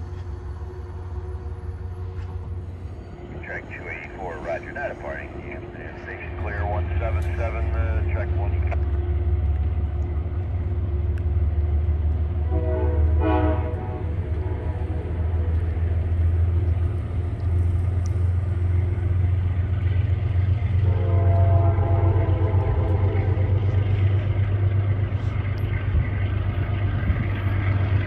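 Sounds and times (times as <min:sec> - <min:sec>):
deep rumble: 0:00.0 - 0:28.0
train horn: 0:12.4 - 0:15.8, 0:20.8 - 0:23.8.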